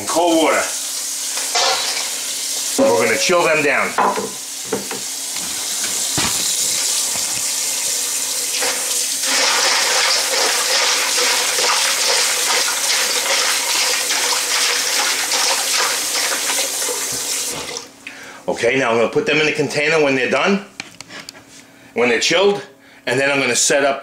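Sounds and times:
faucet running into metal bowl: 0.2 - 17.8.

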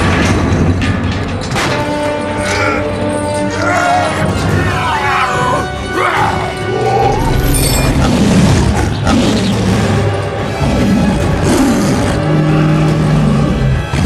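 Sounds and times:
dramatic film score: 0.0 - 14.0
beast growling roars: 3.6 - 14.0.

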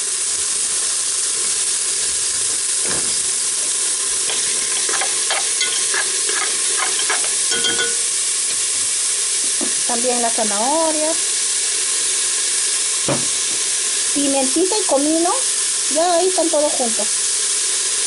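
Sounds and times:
vegetables sizzling in hot oil: 0.0 - 18.0
spoon scraping a pot: 4.3 - 8.1.

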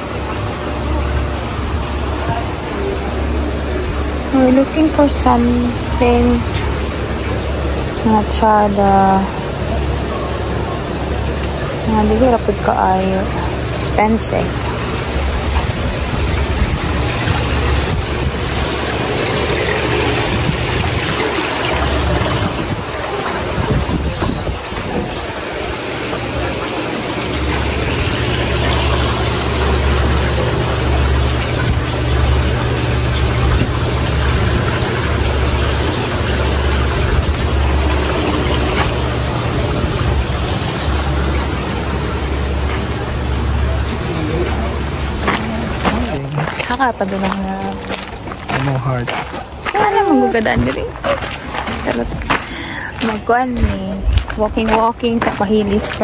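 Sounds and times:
wind buffeting microphone: 13.6 - 26.8.

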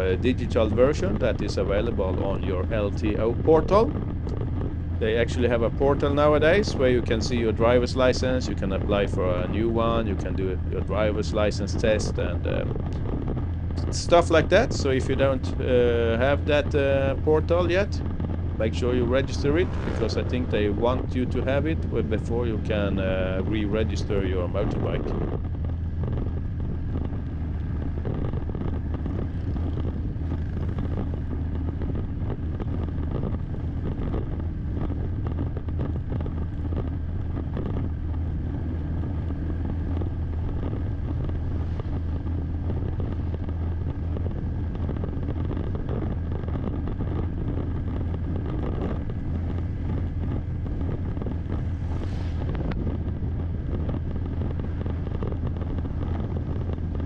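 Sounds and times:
motorbike engine and road noise: 0.0 - 57.0
wind on microphone: 0.0 - 57.0
brief whoosh: 18.7 - 20.8, 51.7 - 52.8.

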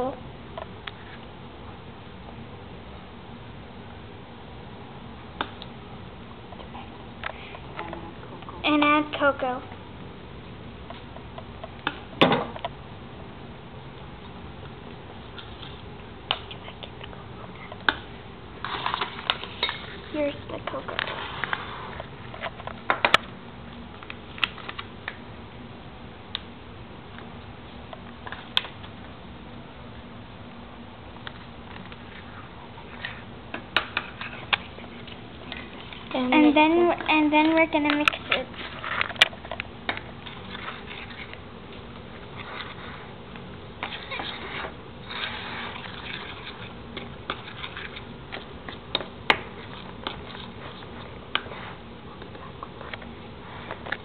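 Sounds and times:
spoon scraping in bowl: 43.8 - 48.1.

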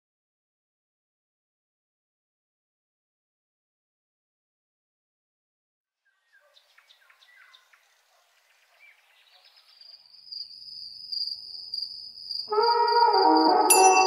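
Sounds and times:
insects and birds chirping: 6.2 - 13.8.

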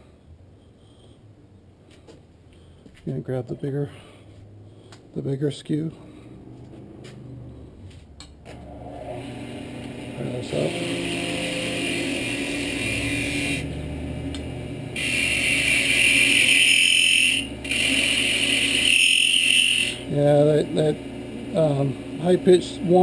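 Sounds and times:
wood lathe running: 8.6 - 23.0
high-pitched chatter whine: 10.2 - 13.8, 15.0 - 22.0
chisel cutting wood: 10.3 - 13.7, 15.0 - 20.1.

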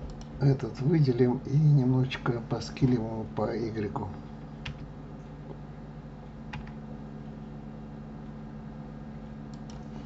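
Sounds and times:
low electrical hum: 0.0 - 10.0
keyboard keys clicking: 6.5 - 6.8.

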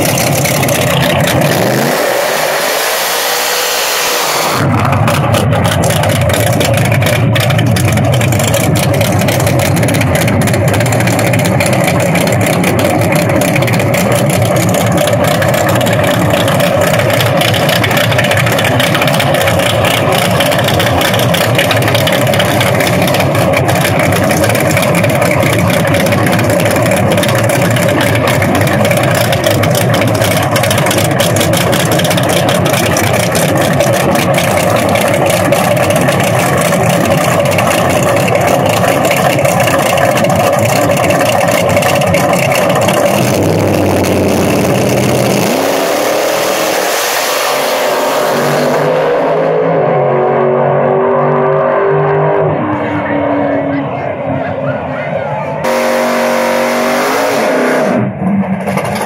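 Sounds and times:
drag-race car engines running: 0.0 - 59.0.

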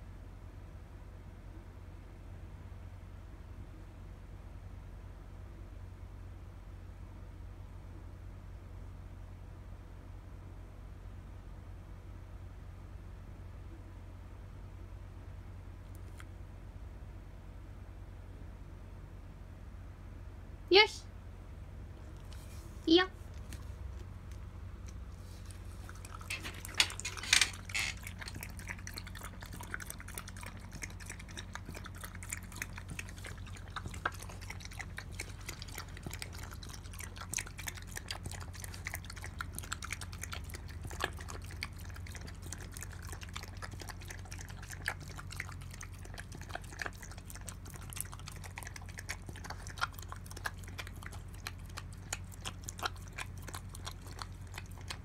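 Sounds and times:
dog lapping from bowl: 25.6 - 55.0.

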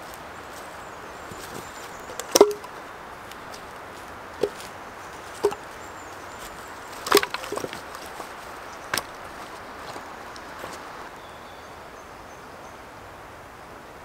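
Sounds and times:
logs knocking together: 1.3 - 3.7, 4.4 - 5.8, 6.4 - 10.8.

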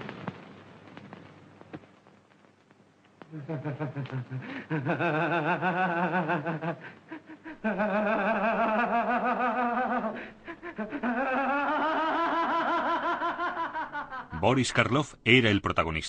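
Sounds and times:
man laughing hysterically: 3.3 - 14.4.

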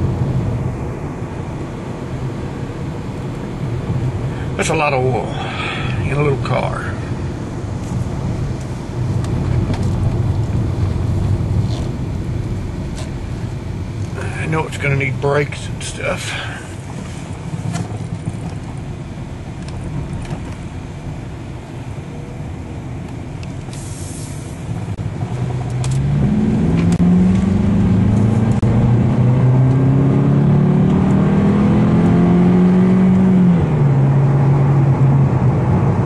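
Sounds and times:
road and tyre noise: 0.0 - 36.0
car engine revving: 22.7 - 36.0.

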